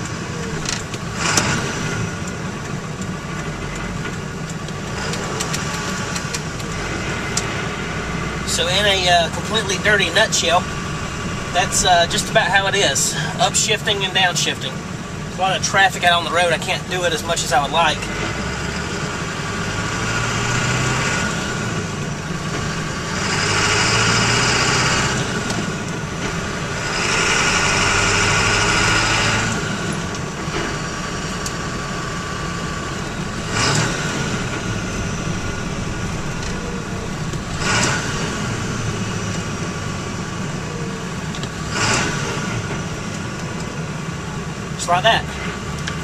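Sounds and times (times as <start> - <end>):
diesel truck engine running: 0.0 - 46.0
rushing noise: 18.6 - 43.4.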